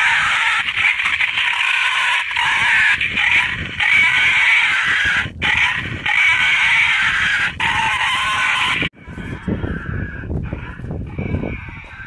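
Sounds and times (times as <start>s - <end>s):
wild boars squealing: 0.0s - 8.9s.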